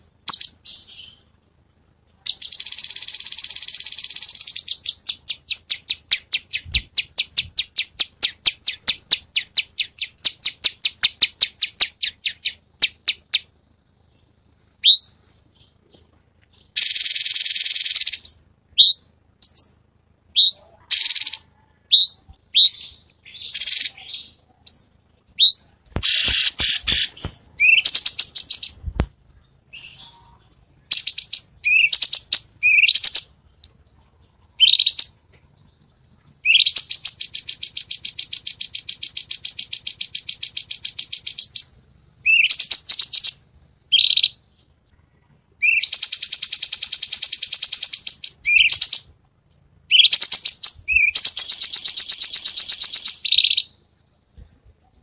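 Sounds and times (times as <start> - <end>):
bird whistled chirps: 0.3 - 1.3, 2.2 - 13.5, 14.8 - 15.4, 16.7 - 28.8, 29.7 - 33.4, 36.4 - 44.4, 45.6 - 49.1, 49.9 - 53.9
bird buzzy trills: 14.8 - 49.2
sharp clicks: 25.8 - 29.2.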